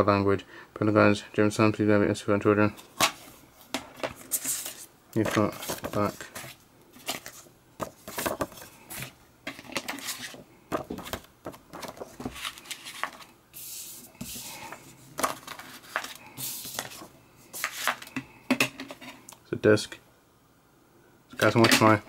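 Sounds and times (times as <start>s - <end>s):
paper rustling: 2.8s - 18.2s.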